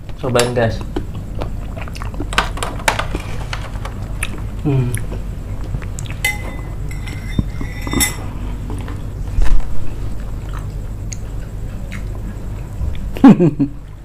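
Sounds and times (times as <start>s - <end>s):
chewing: 0.8s - 2.3s, 10.2s - 13.1s
spoons clicking on ceramic: 6.2s - 8.3s.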